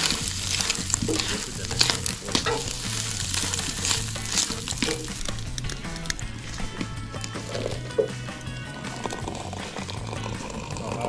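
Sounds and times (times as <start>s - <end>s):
eggs sizzling in a frying pan: 0.0s - 11.0s
utensil scraping a pan: 0.0s - 11.0s.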